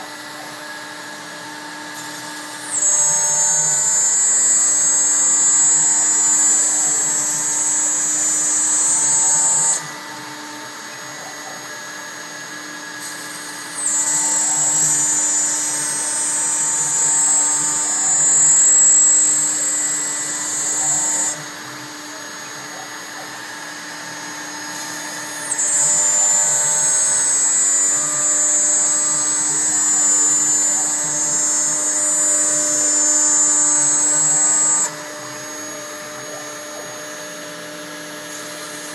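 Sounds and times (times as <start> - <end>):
router spindle whine: 0.0 - 38.9
high-pitched cutting noise: 25.2 - 35.8.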